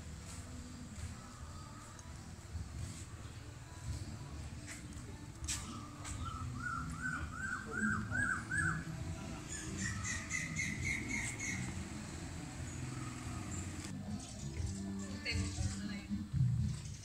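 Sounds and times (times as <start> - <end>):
bird calling: 5.6 - 13.9.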